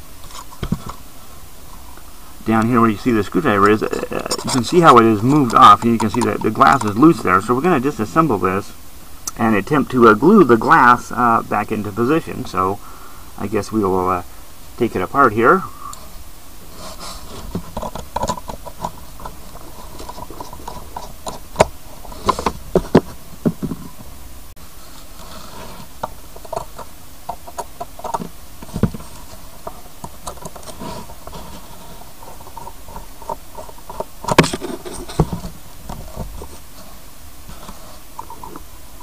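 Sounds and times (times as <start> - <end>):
screwdriver clicks and scrapes: 3.6 - 7.0.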